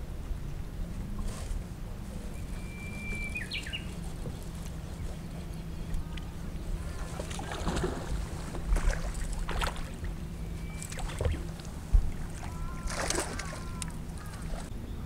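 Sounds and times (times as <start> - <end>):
wind on microphone: 0.0 - 14.8
boat engine humming: 0.0 - 15.0
water splashes: 1.1 - 14.7.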